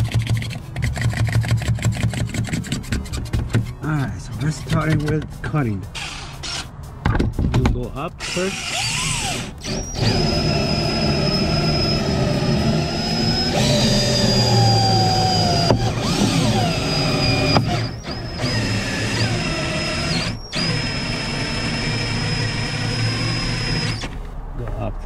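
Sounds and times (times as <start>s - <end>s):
power drill whining: 6.0s - 6.7s, 8.2s - 24.2s.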